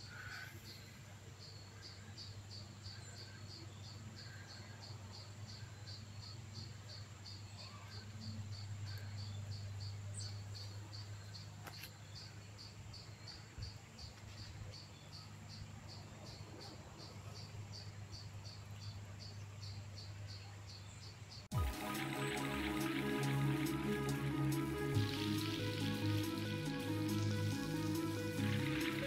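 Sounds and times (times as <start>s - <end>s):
cricket chirping: 0.0s - 22.6s.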